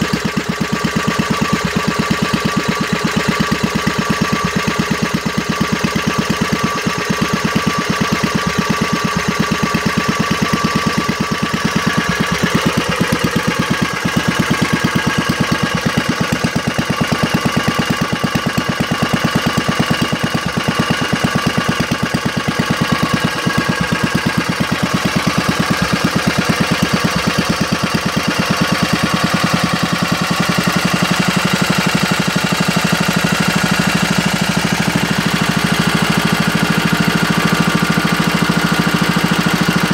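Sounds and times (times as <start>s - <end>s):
small stationary engine running: 0.0s - 39.9s.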